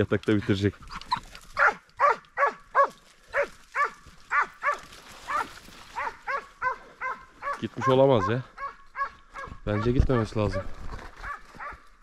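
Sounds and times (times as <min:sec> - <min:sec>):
dog barking in short yelps: 0:01.6 - 0:10.6.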